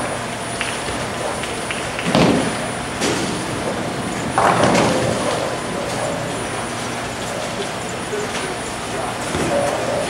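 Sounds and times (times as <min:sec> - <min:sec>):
bowling balls rolling: 0:00.6 - 0:07.6.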